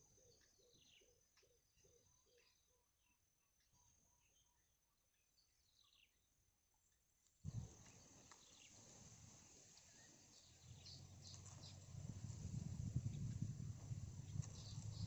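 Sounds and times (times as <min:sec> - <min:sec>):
faint high chirps: 0:00.0 - 0:15.0
outdoor background noise: 0:00.0 - 0:15.0
low rumble: 0:10.3 - 0:15.0.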